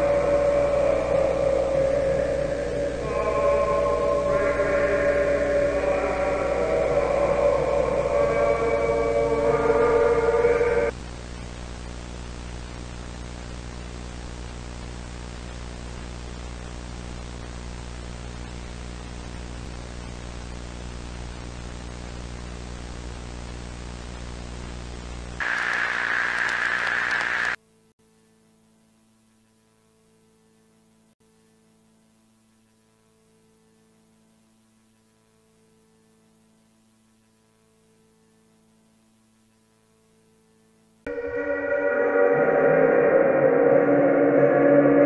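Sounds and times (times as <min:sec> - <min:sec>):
pitched drone of several tones: 0:00.0 - 0:11.0, 0:41.1 - 0:45.0
low mains hum: 0:00.0 - 0:45.0
static hiss: 0:10.4 - 0:27.6
harsh static burst: 0:25.4 - 0:27.6.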